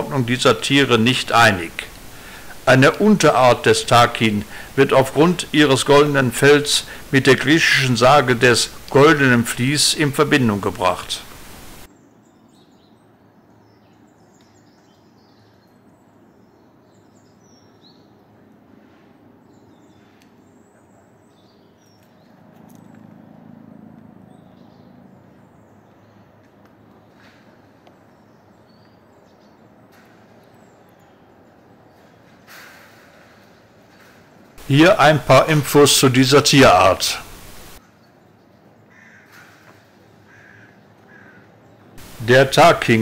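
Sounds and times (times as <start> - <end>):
steady background hush: 0.0 - 11.9, 34.4 - 37.8, 41.9 - 43.0
small birds chirping: 0.0 - 18.5, 19.2 - 23.1, 24.2 - 33.9, 36.3 - 39.3.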